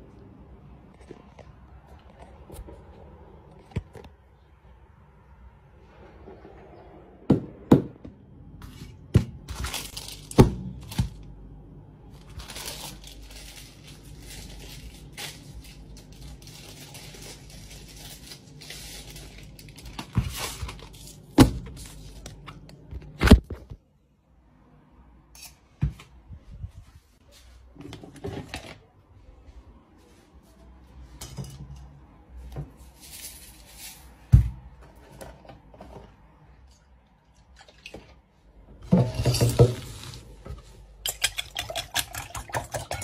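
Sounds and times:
packaging rustling: 0:09.4 - 0:11.2, 0:12.1 - 0:22.4.

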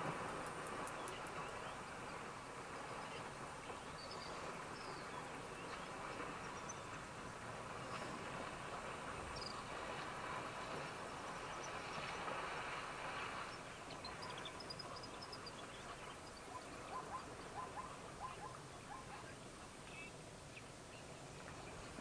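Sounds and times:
water splashing and sloshing: 0:00.0 - 0:15.1
small birds chirping: 0:00.5 - 0:01.8.

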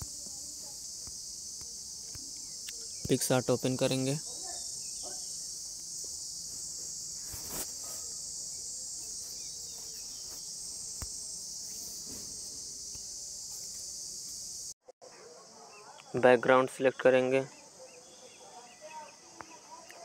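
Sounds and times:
high-pitched background hiss: 0:00.0 - 0:20.0.

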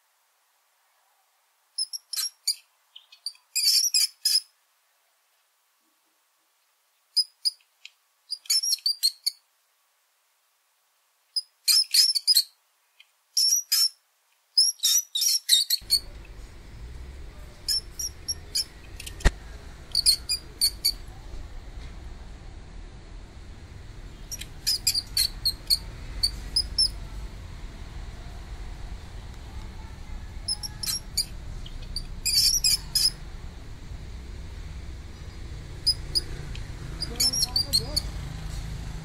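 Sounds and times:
steady background hiss: 0:00.0 - 0:15.2, 0:15.8 - 0:39.0
rodent squeaking: 0:01.8 - 0:04.5, 0:08.3 - 0:09.4, 0:14.6 - 0:21.1, 0:24.1 - 0:27.1, 0:29.8 - 0:38.2.

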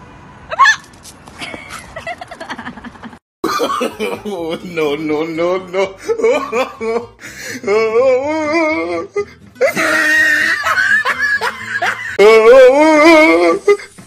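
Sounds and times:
people laughing: 0:09.6 - 0:13.8.

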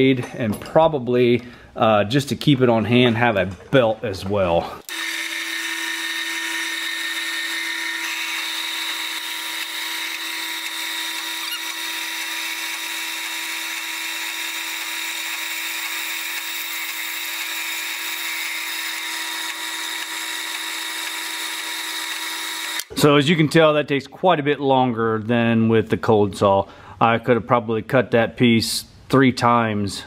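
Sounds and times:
bandsaw cutting metal tubing: 0:04.8 - 0:23.0.

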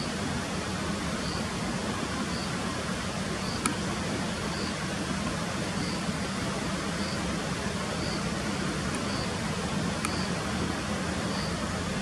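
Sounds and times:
faint high chirp: 0:09.0 - 0:09.3, 0:10.1 - 0:10.3.

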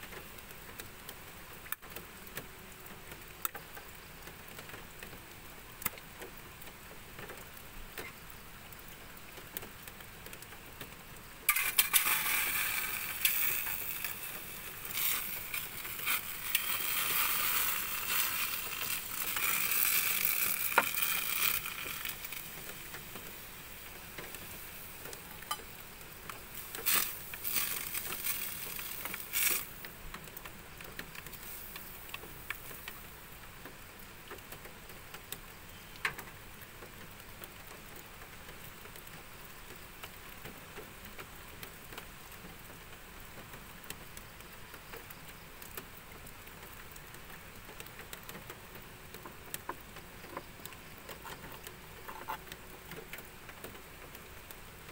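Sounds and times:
food sizzling in a hot pan: 0:11.5 - 0:29.9, 0:31.3 - 0:33.1.

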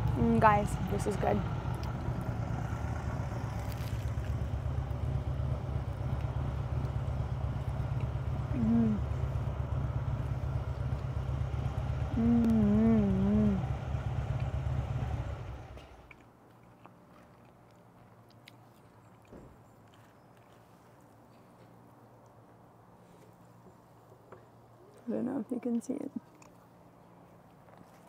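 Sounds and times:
low engine rumble: 0:00.0 - 0:16.2
woman humming mmm: 0:08.5 - 0:09.2, 0:12.1 - 0:13.7.

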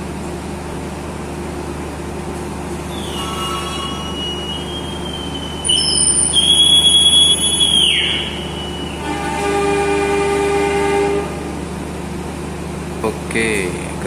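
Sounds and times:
steady low hum: 0:00.0 - 0:14.0
conductor's whistle blast: 0:02.8 - 0:11.5
faint whistle tone: 0:02.9 - 0:09.6.

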